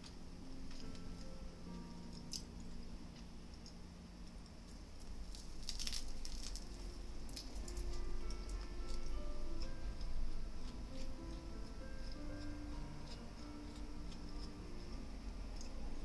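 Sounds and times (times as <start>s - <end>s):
crisp crackly clicks: 0.0s - 16.0s
soft background music: 0.0s - 16.0s.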